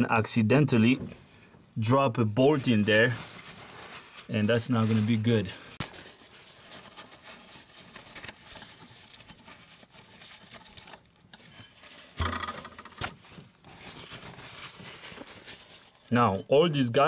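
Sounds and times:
paper towels crinkling: 2.3 - 12.2, 13.2 - 16.4.

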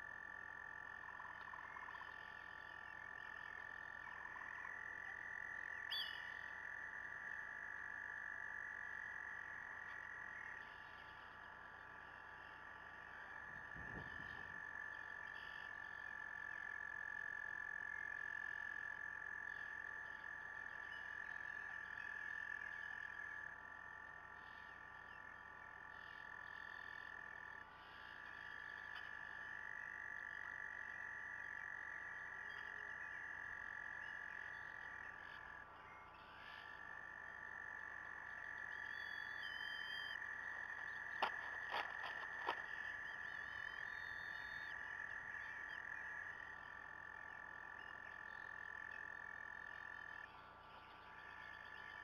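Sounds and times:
frogs trilling: 0.0 - 52.0.

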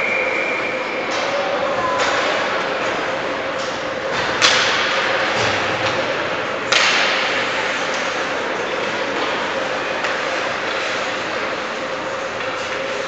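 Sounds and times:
hockey puck cracks echoing: 6.7 - 8.1.

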